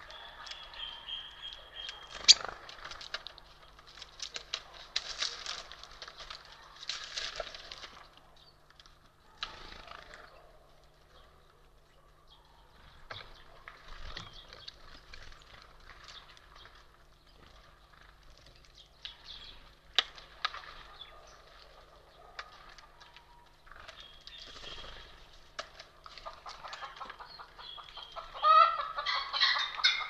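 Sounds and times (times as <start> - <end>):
bird wingbeats: 2.0 - 3.3.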